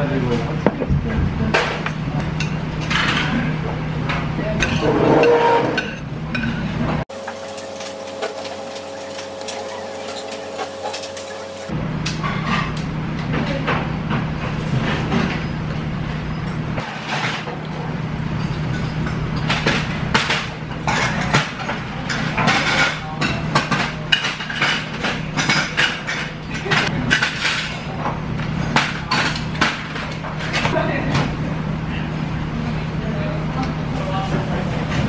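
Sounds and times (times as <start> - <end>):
spoon and chopsticks clinking on bowls: 7.2 - 11.7.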